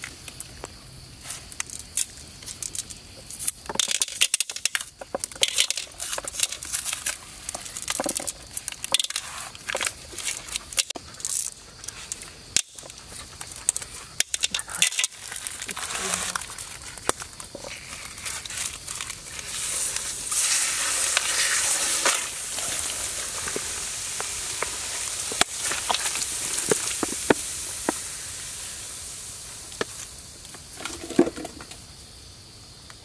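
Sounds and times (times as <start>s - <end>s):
soda fizzing hiss: 17.6s - 31.6s.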